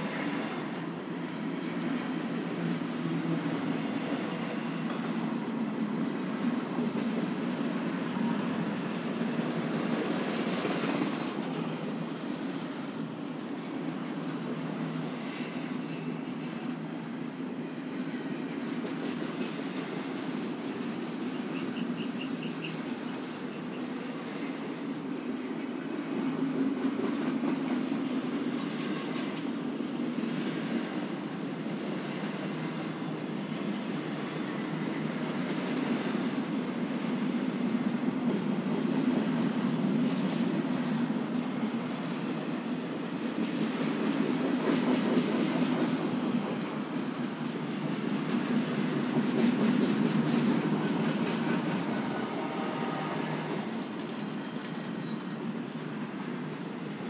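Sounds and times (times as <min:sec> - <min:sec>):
train wheels rumbling on rail: 0:00.0 - 0:57.0
wheel squeal: 0:21.4 - 0:23.9.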